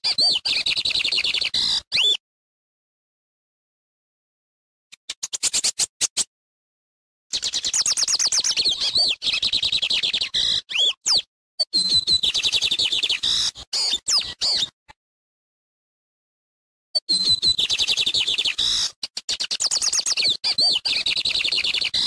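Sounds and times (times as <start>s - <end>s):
bird song chattering and whistles: 0.0s - 2.2s, 5.0s - 6.3s, 7.3s - 14.8s, 17.0s - 22.0s.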